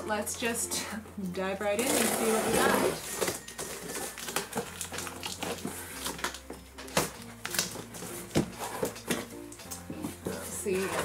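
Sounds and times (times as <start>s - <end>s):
quiet background music: 0.0s - 11.0s
cardboard box being opened: 1.8s - 9.3s.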